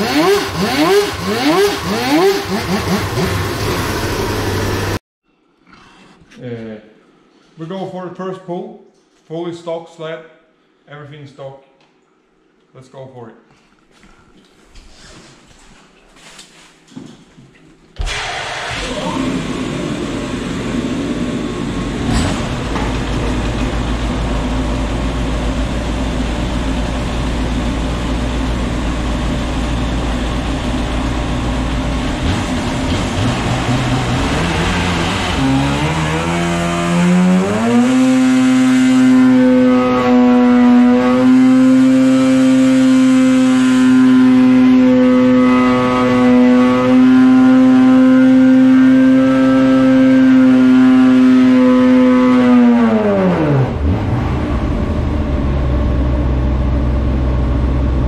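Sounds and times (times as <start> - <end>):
snowmobile engine revving: 0.0 - 5.0, 31.4 - 55.3.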